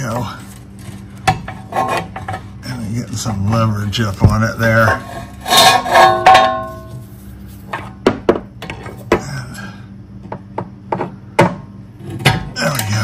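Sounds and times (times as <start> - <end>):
metal clang: 5.0 - 7.0.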